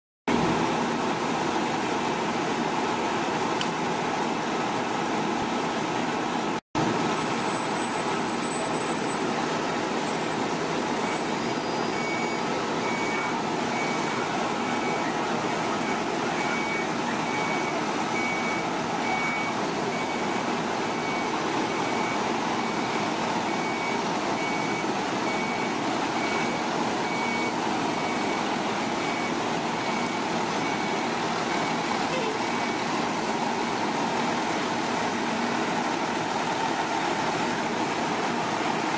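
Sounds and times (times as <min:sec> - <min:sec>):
diesel engines and pumps running: 0:00.3 - 0:38.9
high electronic beeps: 0:07.1 - 0:34.3.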